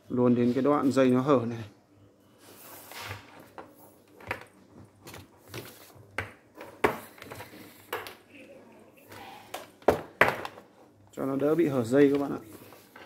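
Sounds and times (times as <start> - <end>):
rubbing and rustling of cable: 2.4 - 8.3, 9.0 - 13.0.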